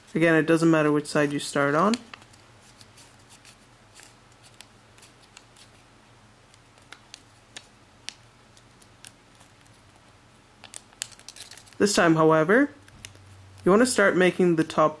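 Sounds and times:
low steady hum: 0:00.0 - 0:15.0
paper crackling and clicking: 0:01.7 - 0:05.8, 0:06.5 - 0:11.8.

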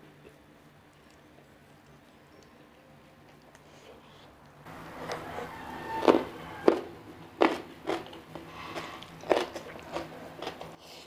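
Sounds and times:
crunchy food chewing: 0:03.3 - 0:11.0.

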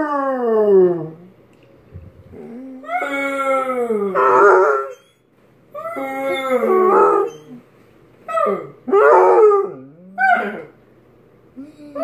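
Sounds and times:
dog howling: 0:02.4 - 0:05.1, 0:05.8 - 0:07.6, 0:08.3 - 0:10.7.

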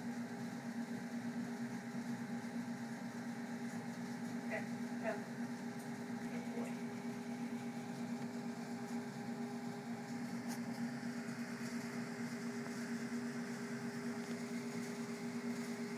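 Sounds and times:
mechanical hum: 0:00.0 - 0:15.9.

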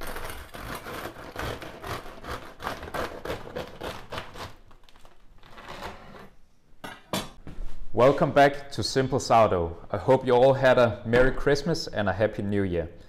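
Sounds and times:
bread knife sawing through crust: 0:00.0 - 0:04.6.

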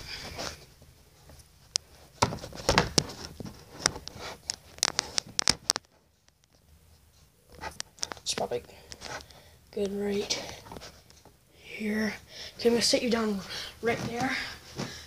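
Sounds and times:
phone handling rustle: 0:01.7 - 0:06.6.

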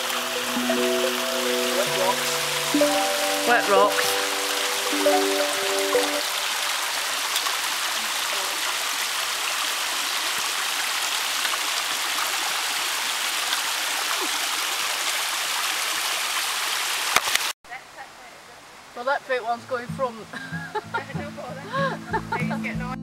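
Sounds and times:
stream running over rocks: 0:00.0 - 0:17.6.

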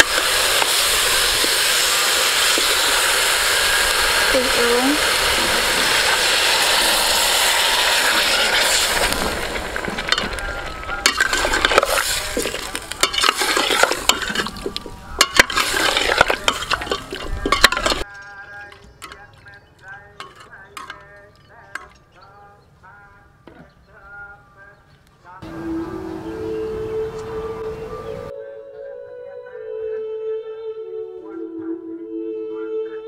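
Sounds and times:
liquid sizzling in hot pot: 0:00.0 - 0:18.1
metal ladle scraping pot: 0:05.0 - 0:22.1.

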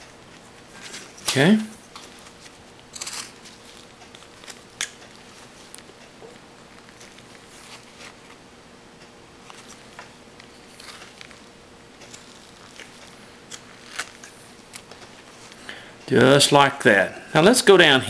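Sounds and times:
knife cutting wood: 0:02.9 - 0:03.7.

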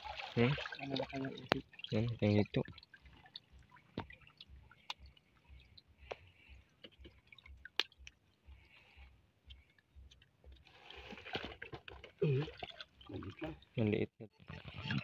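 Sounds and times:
water dripping: 0:00.0 - 0:13.8.

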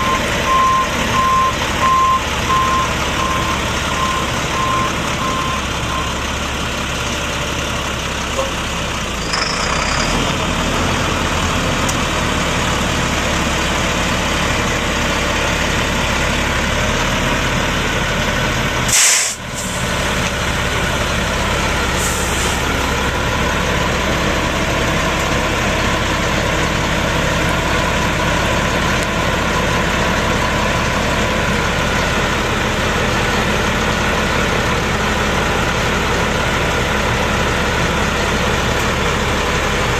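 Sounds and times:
diesel truck engine idling: 0:00.0 - 0:39.9
air release hiss: 0:18.9 - 0:19.9.

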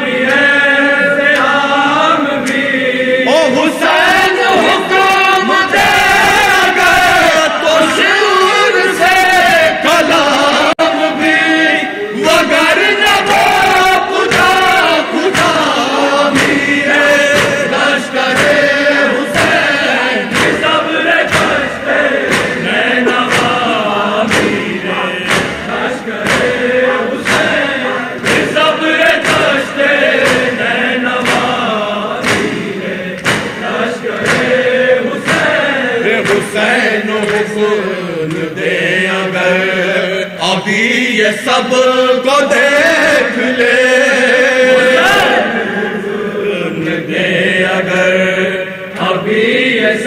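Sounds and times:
lead reciter chanting: 0:00.0 - 0:50.0
men's chorus chanting: 0:00.0 - 0:50.0
hands striking chests: 0:32.2 - 0:34.5.

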